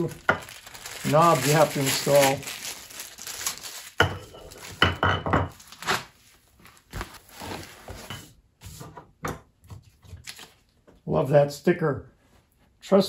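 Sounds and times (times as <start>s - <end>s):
rubbing and rustling: 5.6s - 8.8s.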